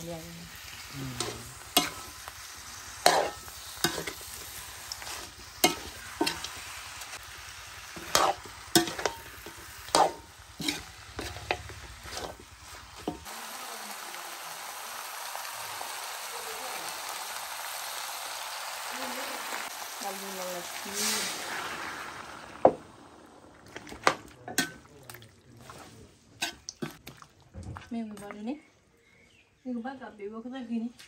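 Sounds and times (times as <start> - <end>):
food sizzling: 0.0 - 27.2
metal ladle scraping a wok: 0.6 - 7.1, 7.8 - 13.3.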